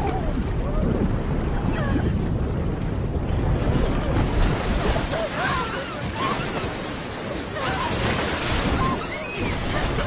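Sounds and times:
floodwater rushing: 0:00.0 - 0:10.0
people crying and shouting: 0:04.4 - 0:10.0.

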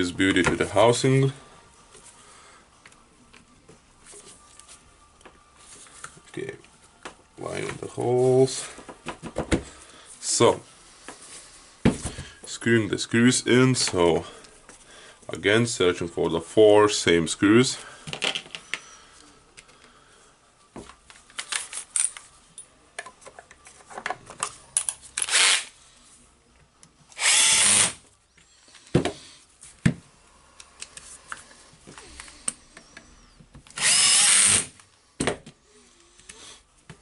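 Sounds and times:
cordless drill running: 0:25.2 - 0:25.7, 0:27.2 - 0:28.0, 0:33.8 - 0:34.7.

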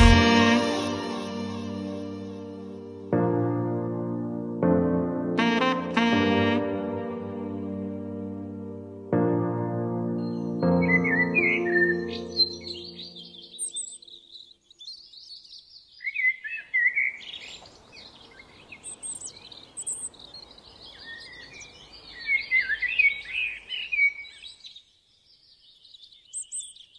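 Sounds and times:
birds chirping and trilling: 0:10.2 - 0:26.9
faint background hiss: 0:17.1 - 0:26.9.

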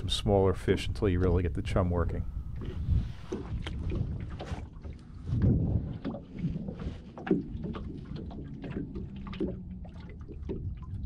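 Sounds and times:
low rumble: 0:00.0 - 0:11.0
waves slapping against boat hull: 0:02.6 - 0:11.0.

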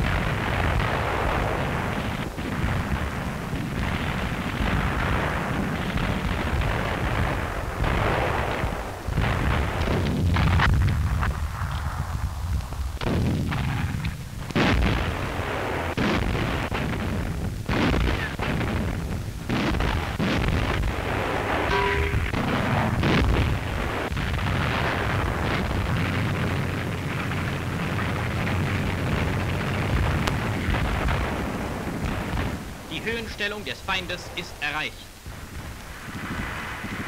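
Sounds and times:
artillery explosions: 0:00.0 - 0:11.3, 0:13.0 - 0:33.4
low rumble: 0:21.7 - 0:25.1.

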